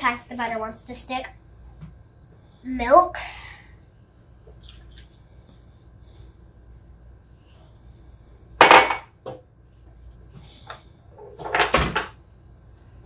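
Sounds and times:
kitchen things knocking on countertop: 0:08.6 - 0:09.4.

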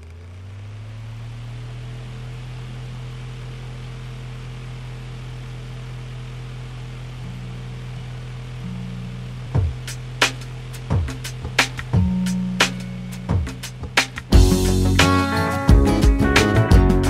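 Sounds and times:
steady low hum: 0:07.2 - 0:15.0.

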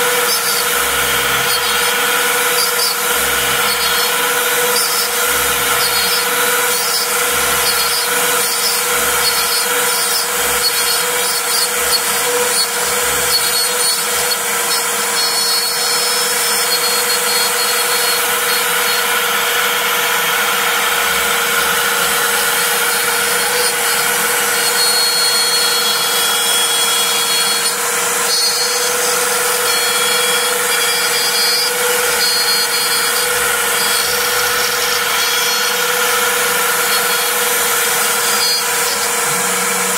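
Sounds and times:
stepper motor tones: 0:00.0 - 0:14.7, 0:29.4 - 0:39.9
bit cutting wood: 0:00.0 - 0:39.9
router spindle whine: 0:00.0 - 0:39.9.

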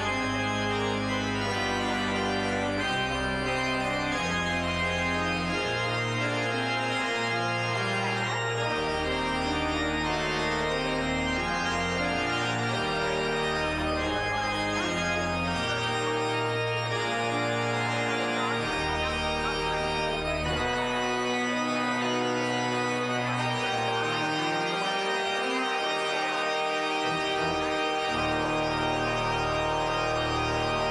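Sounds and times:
pipe organ playing: 0:00.0 - 0:30.9.

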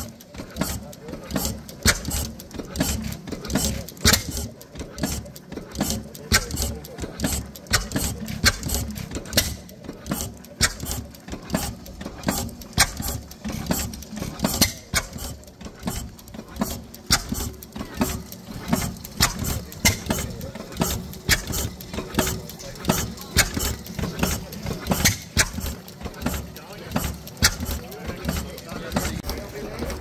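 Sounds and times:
stationary engine running: 0:00.0 - 0:30.0
valve gear clicking: 0:00.0 - 0:30.0.

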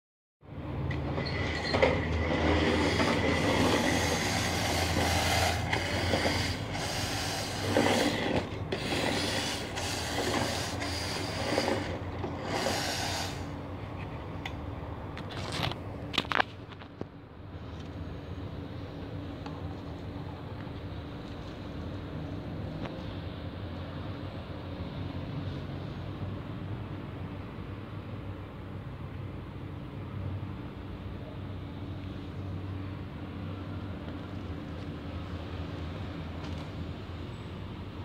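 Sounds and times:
wheels rolling over tiles: 0:00.9 - 0:13.5
toy truck motor humming: 0:02.2 - 0:13.6.

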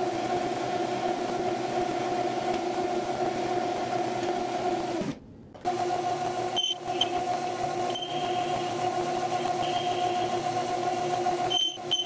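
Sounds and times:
metal lathe whine: 0:06.5 - 0:12.0.

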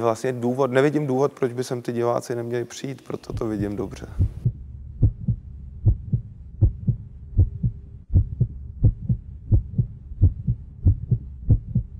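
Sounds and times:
faint steady hum: 0:00.0 - 0:11.9
heartbeat-style low double thumps: 0:03.3 - 0:11.9.

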